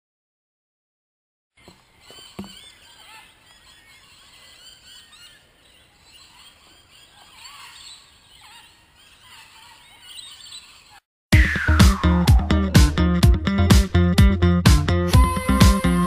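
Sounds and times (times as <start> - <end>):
birds calling and chirping: 1.6 - 11.1.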